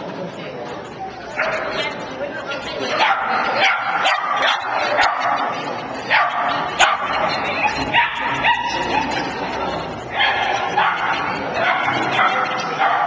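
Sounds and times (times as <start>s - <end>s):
dog barking: 2.9s - 9.4s, 10.1s - 13.0s.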